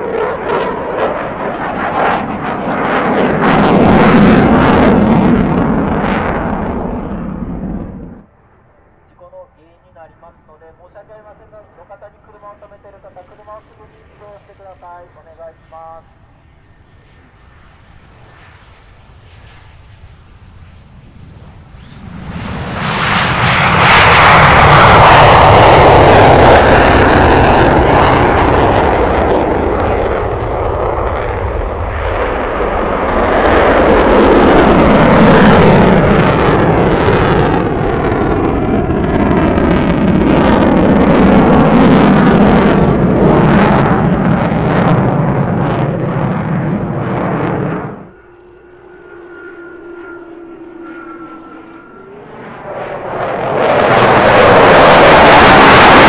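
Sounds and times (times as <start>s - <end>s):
jet engines roaring on afterburner: 0.0s - 56.0s
harsh jet crackle: 12.6s - 15.5s, 17.2s - 31.5s.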